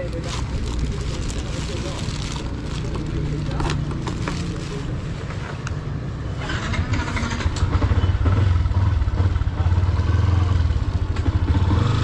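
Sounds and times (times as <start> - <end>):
motorcycle engine at low revs: 6.5 - 12.0.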